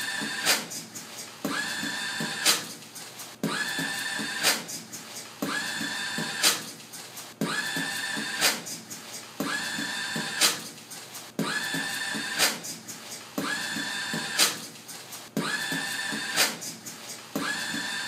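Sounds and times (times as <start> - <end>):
beatboxed mouth percussion: 0.0 - 18.0
paper towel dispenser motor whirring: 17.4 - 18.0.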